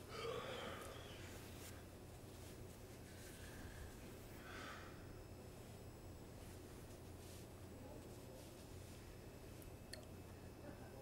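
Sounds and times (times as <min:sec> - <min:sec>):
low room hum: 0:00.0 - 0:11.0
duvet rustling: 0:01.1 - 0:04.4, 0:05.4 - 0:09.6.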